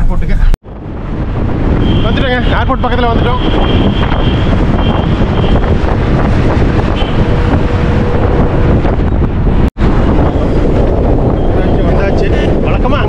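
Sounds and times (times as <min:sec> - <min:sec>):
road noise: 0:00.0 - 0:13.0
wind buffeting microphone: 0:00.1 - 0:13.0
bus running: 0:03.6 - 0:12.6.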